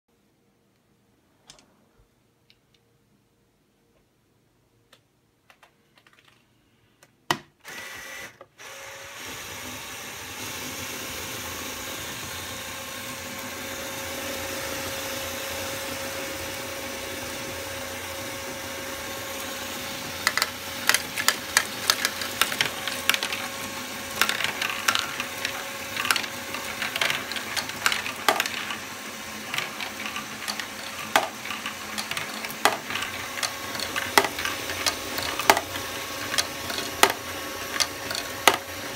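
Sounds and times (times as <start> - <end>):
electric motors and gears whirring: 7.6 - 38.9
plastic balls clattering: 20.0 - 38.9.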